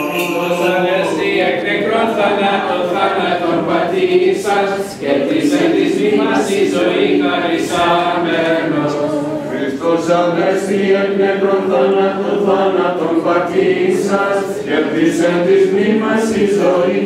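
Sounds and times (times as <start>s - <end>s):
choir singing a cappella: 0.0s - 17.0s.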